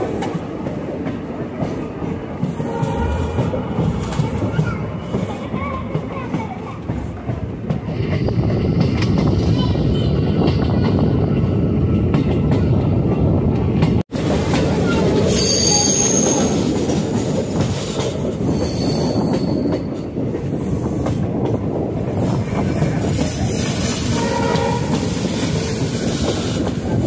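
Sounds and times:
train wheels rumbling on track: 0.0s - 27.0s
high-pitched wheel squeal: 15.3s - 16.6s, 18.5s - 19.7s.

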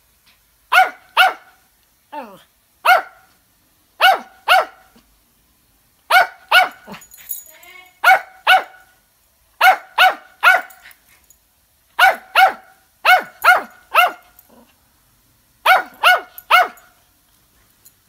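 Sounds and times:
small dog yapping: 12.0s - 14.4s, 15.7s - 16.8s.

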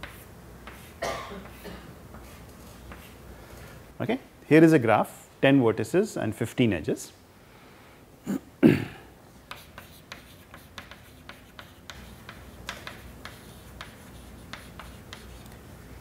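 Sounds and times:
chalk writing on chalkboard: 0.0s - 1.6s, 2.2s - 3.2s, 9.5s - 15.6s.

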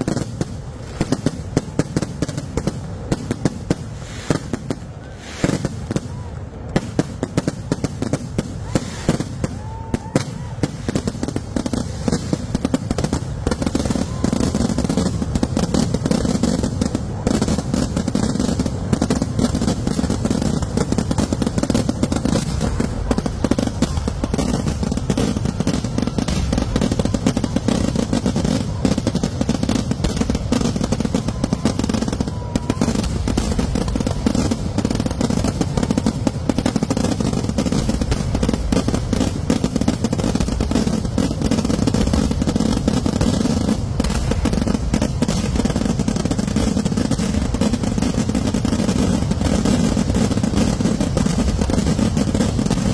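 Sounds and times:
fireworks barrage bangs and crackling: 0.0s - 52.9s.

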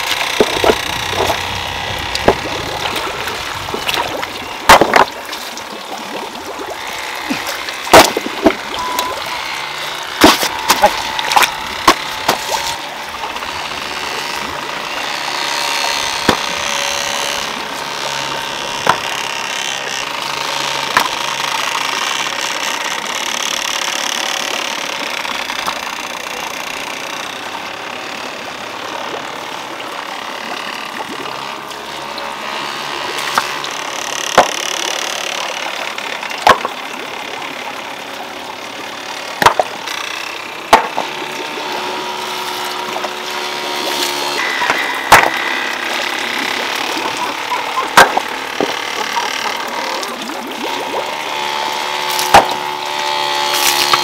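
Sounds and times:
stones knocking together: 3.6s - 5.2s, 10.2s - 12.8s, 16.2s - 16.5s, 18.8s - 19.1s, 34.3s - 34.6s, 36.4s - 36.8s, 39.4s - 39.7s, 40.7s - 41.1s.

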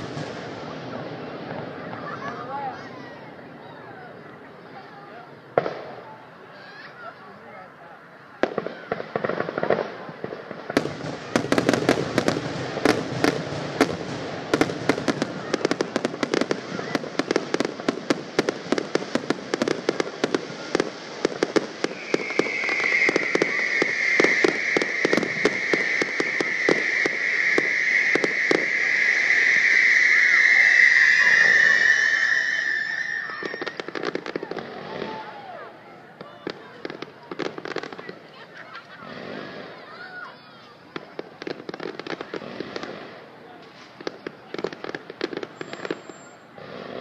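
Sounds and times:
fireworks bangs and crackling: 0.0s - 6.8s, 8.3s - 47.0s
high whistle: 21.8s - 33.9s, 45.6s - 46.5s.

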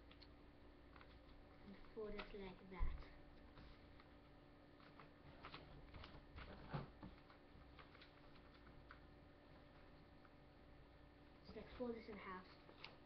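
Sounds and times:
paper being folded and creased: 4.8s - 9.0s, 11.9s - 13.0s.

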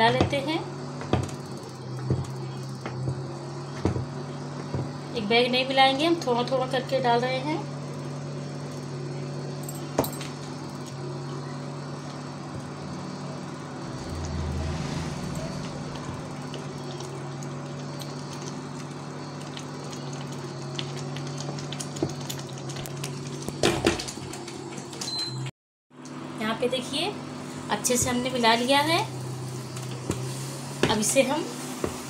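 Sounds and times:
induction cooktop hum: 0.0s - 25.4s.

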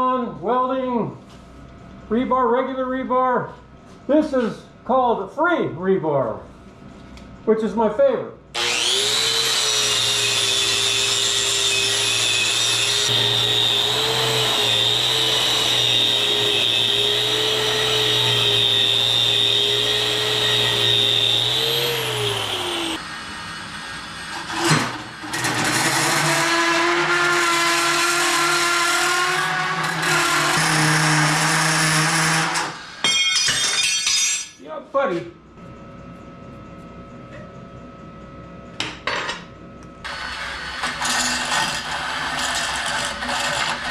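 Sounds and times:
power tool whining: 8.6s - 33.2s, 40.0s - 43.9s.

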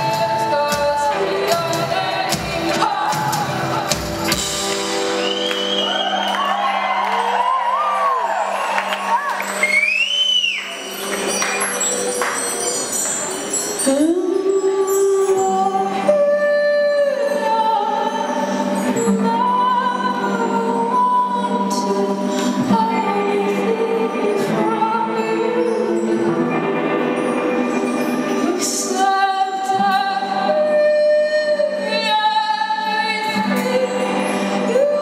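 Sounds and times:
woman singing with vibrato: 0.0s - 4.2s, 13.8s - 27.0s, 28.3s - 35.0s.

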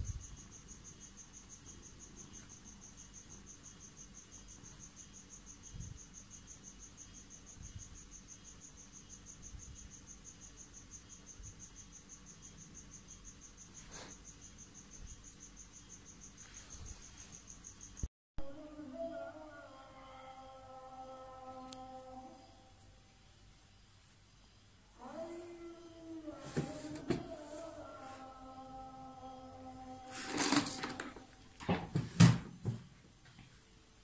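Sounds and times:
cricket chirping: 0.0s - 26.4s.

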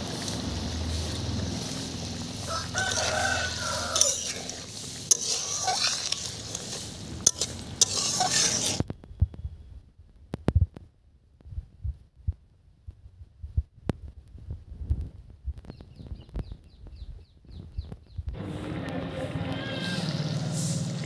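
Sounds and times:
curry simmering and sizzling: 0.0s - 8.9s
fire popping: 0.0s - 9.2s
rooster crowing: 2.4s - 4.5s.

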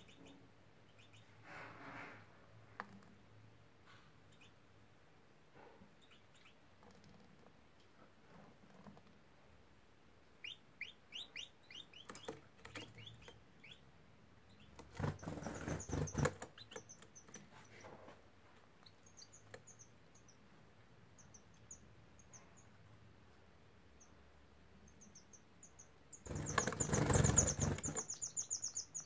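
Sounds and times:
canaries chirping: 0.0s - 1.4s, 4.3s - 4.6s, 6.0s - 7.3s, 10.4s - 18.2s, 18.8s - 23.0s, 23.9s - 29.0s
wing flutter and rustling: 26.3s - 28.2s.

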